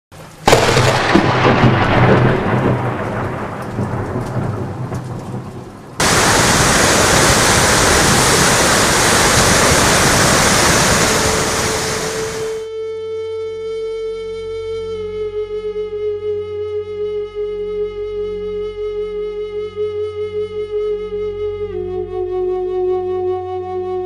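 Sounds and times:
heavy rain: 0.2 - 12.7
thunder rumbling: 0.2 - 12.7
flash flood torrent rushing: 0.4 - 12.7.

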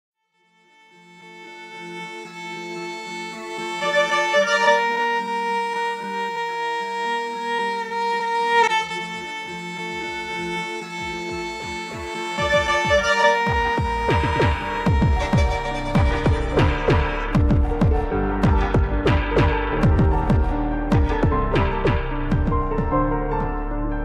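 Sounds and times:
bowed string chords: 0.4 - 24.0
deep bass notes falling in pitch: 12.4 - 24.0.

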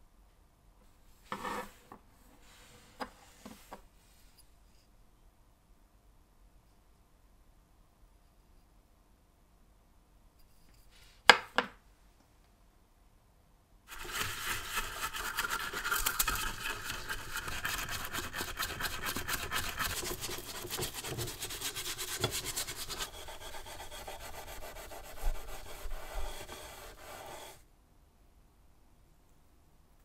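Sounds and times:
brush scrubbing metal in water: 13.9 - 27.6.

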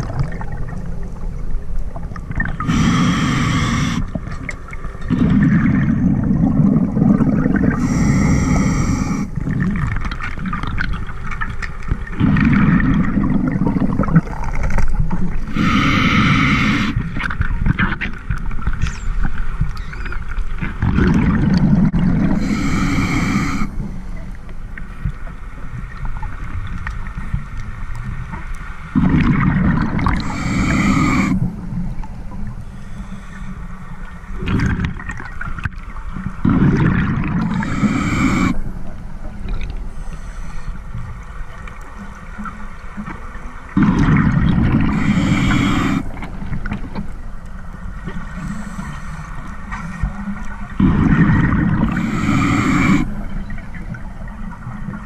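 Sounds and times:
exhaled bubbles gurgling: 0.0 - 24.4, 28.9 - 33.2, 33.9 - 43.1, 43.7 - 55.0
diver breathing through regulator: 2.6 - 4.2, 7.1 - 9.4, 15.4 - 17.1, 22.2 - 24.1, 30.1 - 31.6, 32.6 - 33.8, 37.4 - 38.7, 39.9 - 41.0, 44.8 - 46.4, 48.1 - 50.1, 51.8 - 53.2.

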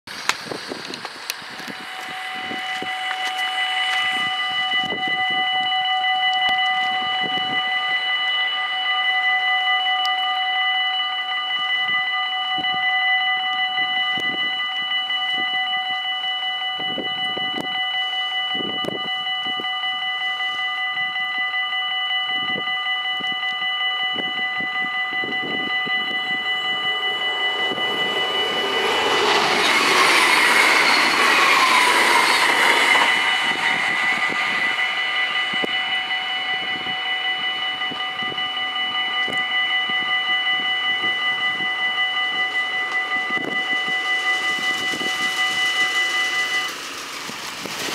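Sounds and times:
train rushing past: 0.1 - 5.8, 25.3 - 47.9
level crossing bells ringing: 1.8 - 47.0.

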